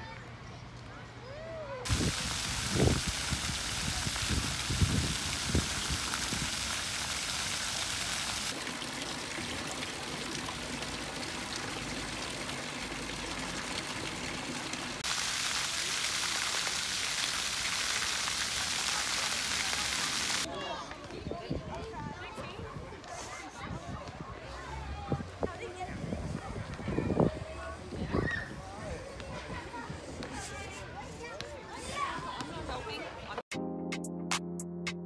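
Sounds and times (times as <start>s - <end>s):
fountain water splashing: 1.9s - 20.5s.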